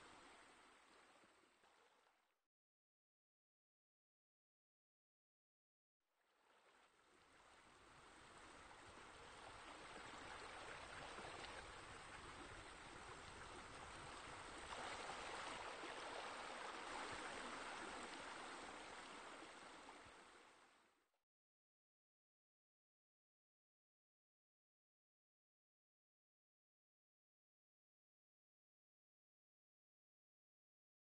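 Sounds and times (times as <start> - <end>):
flowing water: 0.0 - 2.1, 6.4 - 21.0.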